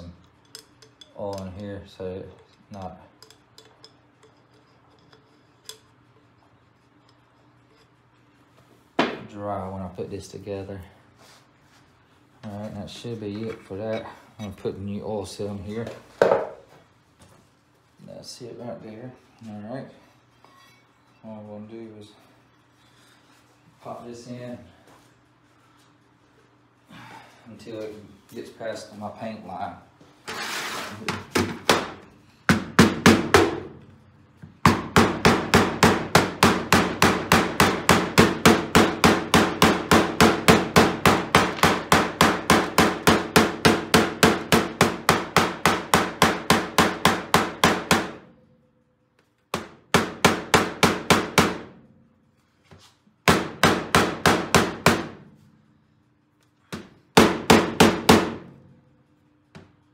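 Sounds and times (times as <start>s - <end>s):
hammer tapping metal: 0.0s - 1.6s.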